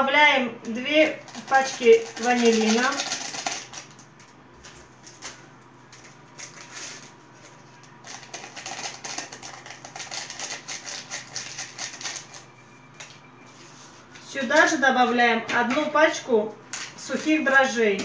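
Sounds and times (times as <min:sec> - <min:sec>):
sachets crinkling: 0:01.2 - 0:04.1, 0:06.0 - 0:12.5
fingers tapping sachets: 0:01.3 - 0:04.0.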